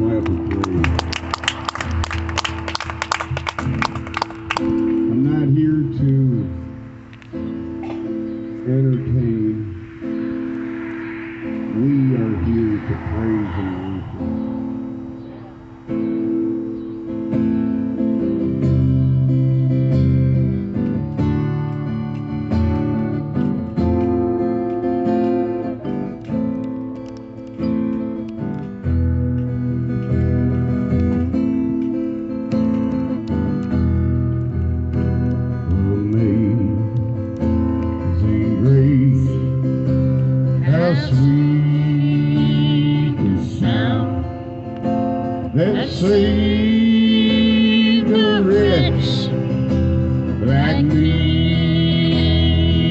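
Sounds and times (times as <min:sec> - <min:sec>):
man singing gospel: 0:35.7 - 0:37.0, 0:38.0 - 0:39.5, 0:40.6 - 0:44.3, 0:45.5 - 0:49.4, 0:50.4 - 0:52.9.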